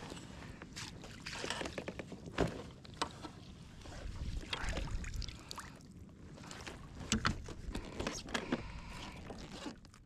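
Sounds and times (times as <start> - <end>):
water splashing around kayak: 0.0 - 10.0.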